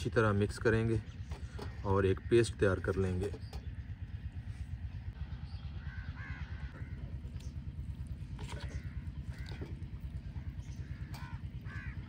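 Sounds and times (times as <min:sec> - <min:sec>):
low rumble: 0:01.0 - 0:12.0
crows cawing: 0:01.4 - 0:02.7, 0:05.7 - 0:07.6, 0:08.4 - 0:12.0.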